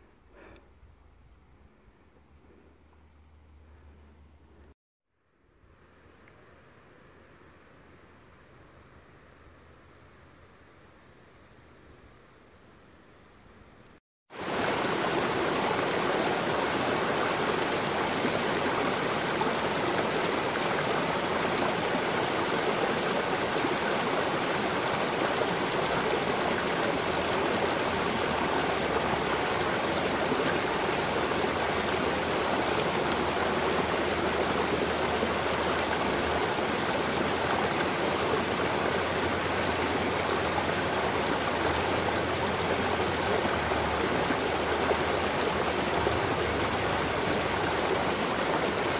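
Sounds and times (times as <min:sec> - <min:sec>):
creek water rushing over rocks: 0:14.3 - 0:48.9.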